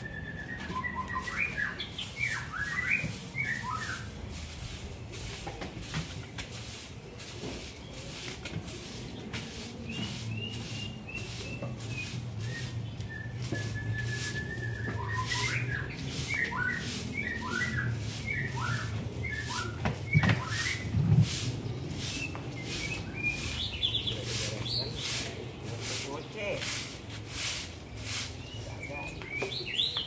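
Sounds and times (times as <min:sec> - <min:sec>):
bird chirping and whistling: 0:00.0 - 0:04.2, 0:09.9 - 0:21.0, 0:22.0 - 0:25.1, 0:28.4 - 0:30.0
broom sweeping brick paving: 0:00.0 - 0:30.0.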